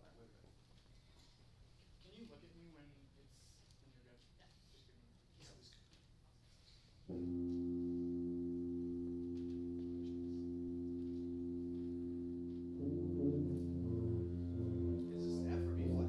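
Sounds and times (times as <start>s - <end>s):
concert band sustained tuning note: 7.1s - 16.0s.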